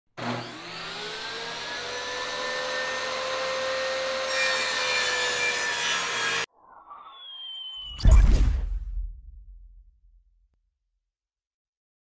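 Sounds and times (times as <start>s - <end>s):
saw cutting into board: 0.2s - 6.5s
table saw blade whine: 0.2s - 8.0s.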